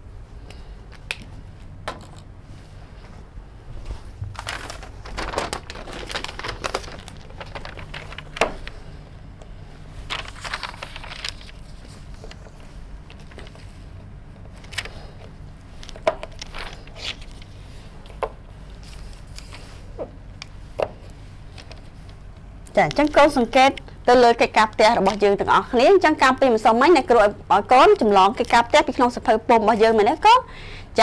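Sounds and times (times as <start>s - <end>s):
paper rustling and crinkling: 3.8s - 9.0s, 10.0s - 18.0s, 18.7s - 20.0s.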